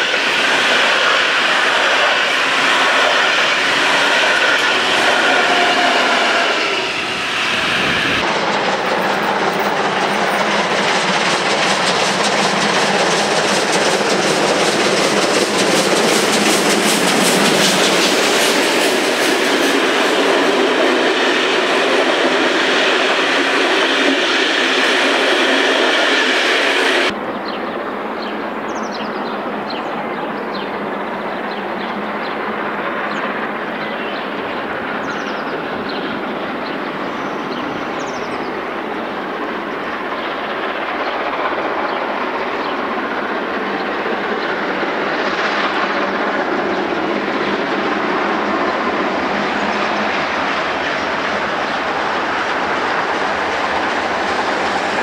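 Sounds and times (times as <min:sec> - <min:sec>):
train wheels clickety-clack: 0:00.0 - 0:27.2, 0:28.2 - 0:55.0
steam locomotive approaching: 0:00.0 - 0:55.0.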